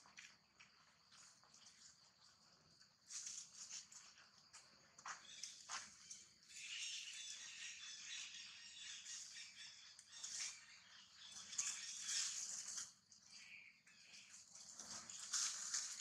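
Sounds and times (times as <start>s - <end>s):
insects chirping: 0.0s - 16.0s
birds chirping: 5.0s - 14.6s.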